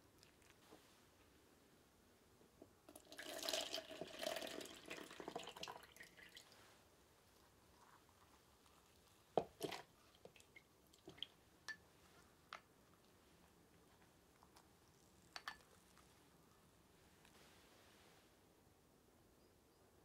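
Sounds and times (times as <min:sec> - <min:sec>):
water dripping and trickling: 0:03.0 - 0:06.6, 0:09.4 - 0:11.3.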